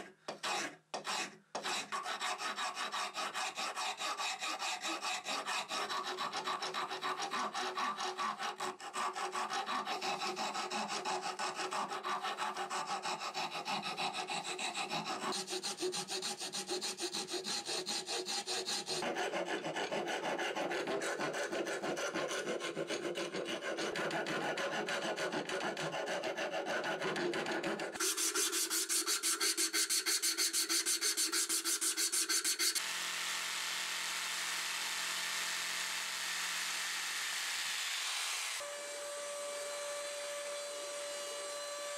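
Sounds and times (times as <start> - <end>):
hand file rasping on wood: 0.0 - 32.8
power tool buzzing: 32.4 - 41.9.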